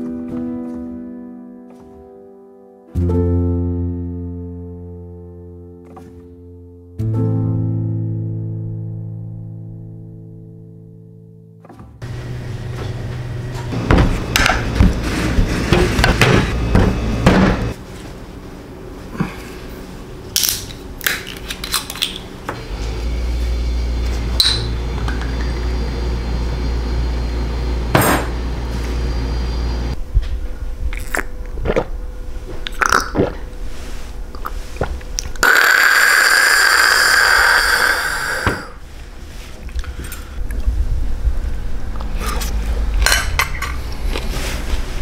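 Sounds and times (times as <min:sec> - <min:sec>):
steady low hum: 0:12.0 - 0:20.3, 0:22.4 - 0:35.4, 0:37.7 - 0:45.0
loud hiss: 0:35.4 - 0:38.9.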